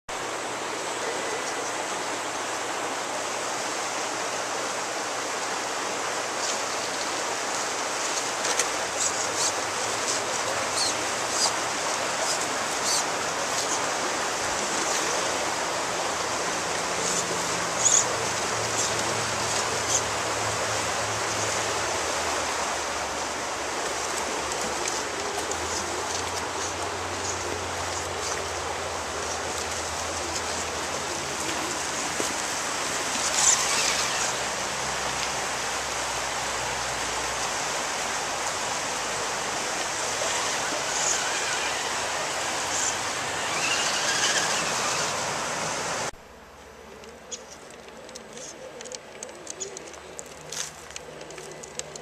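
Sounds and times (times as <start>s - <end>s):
stream water flowing: 0.1s - 52.0s
light clicks and ticks: 47.0s - 52.0s.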